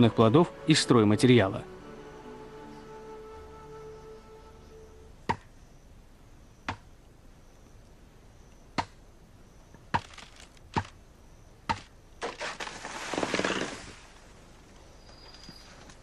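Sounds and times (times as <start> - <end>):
blade chopping bamboo: 11.7 - 13.7.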